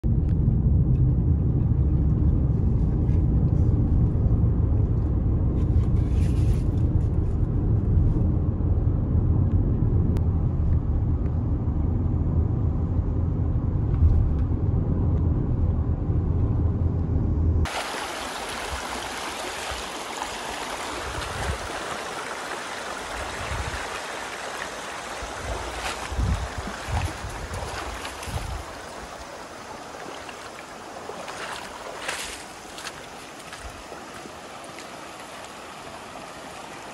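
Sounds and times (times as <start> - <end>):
car road and engine rumble: 0.0 - 17.8
mountain stream rushing: 17.7 - 36.9.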